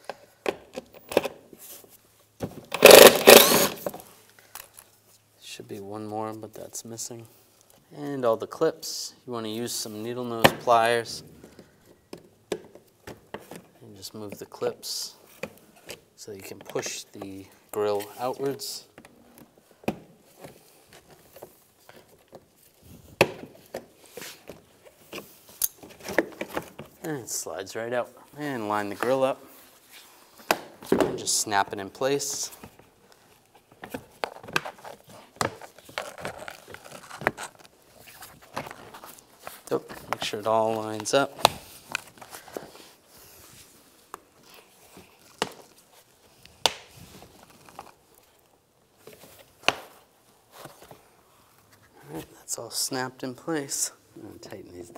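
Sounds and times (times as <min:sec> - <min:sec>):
plastic rubbing: 0:33.1 - 0:40.9.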